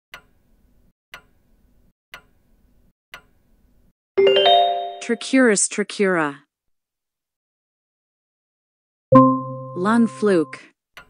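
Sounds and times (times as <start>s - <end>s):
countdown timer ticking: 9.1s - 10.6s.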